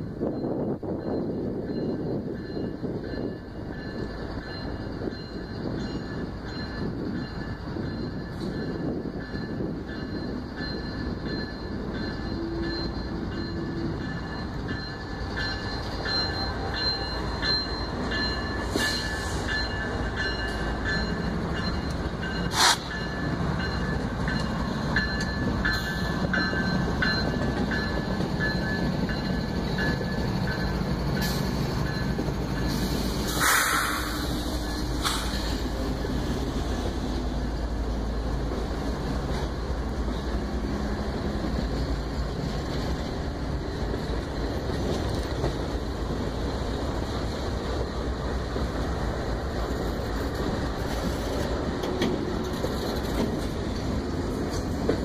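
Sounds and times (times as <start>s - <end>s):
diesel locomotive rumbling: 0.0s - 55.0s
wheel squeal on rail: 3.8s - 35.9s.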